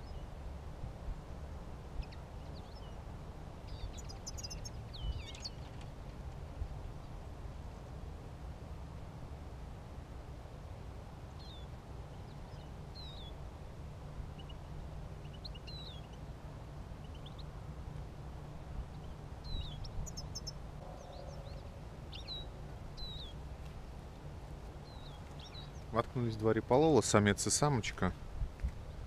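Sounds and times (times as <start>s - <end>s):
steady low rumble: 0.0s - 26.2s
finches chirping: 3.7s - 5.6s, 15.2s - 16.2s, 18.9s - 23.4s, 24.8s - 25.9s.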